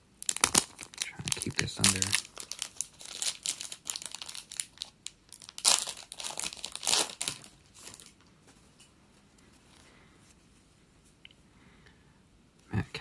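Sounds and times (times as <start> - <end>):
foil wrapper crinkling and tearing: 0.2 - 8.2.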